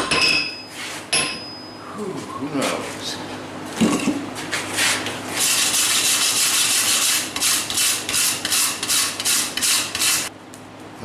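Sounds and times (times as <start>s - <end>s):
wire brush scrubbing hot metal: 4.9s - 10.3s.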